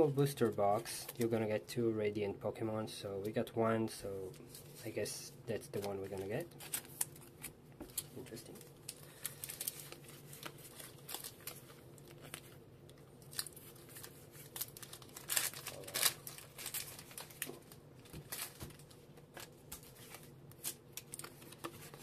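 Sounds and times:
cards crinkling: 5.6s - 22.0s.

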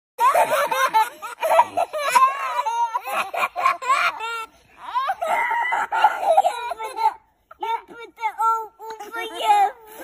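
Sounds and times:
toddlers laughing: 0.2s - 7.8s.

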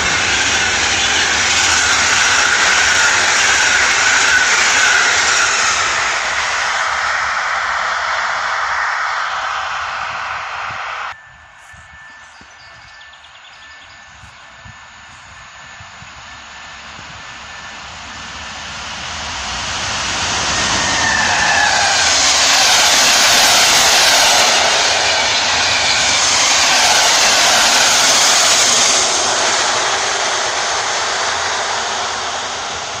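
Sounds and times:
locomotive whine: 0.0s - 33.0s
wheels rushing on rail: 0.0s - 33.0s.

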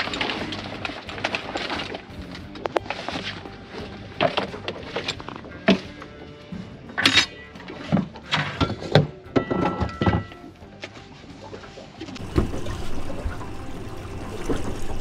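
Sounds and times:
water washing: 0.0s - 6.2s, 10.8s - 15.0s
metal tanks clanking: 0.0s - 10.6s, 12.0s - 15.0s.

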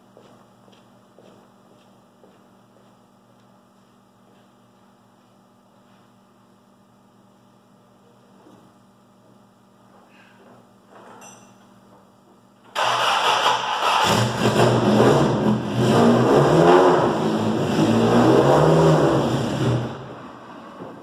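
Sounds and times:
faint mains hum: 0.0s - 12.8s.

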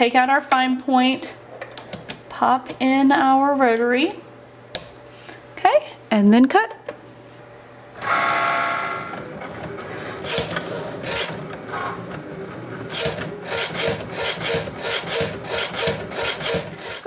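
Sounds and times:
cutting machine motor whine: 8.0s - 17.0s
regular machine strokes: 8.0s - 17.0s.

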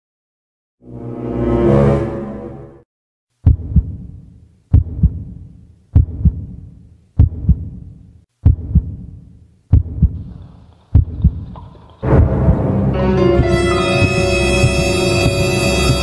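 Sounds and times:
heartbeat thumps: 3.4s - 16.0s.

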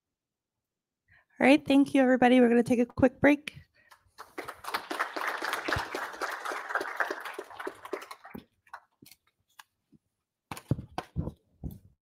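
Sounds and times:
audience applauding: 4.2s - 9.0s.

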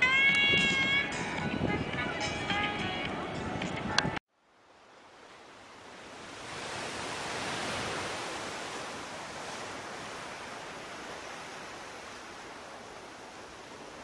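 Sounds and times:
ocean surf rushing: 4.8s - 14.0s.

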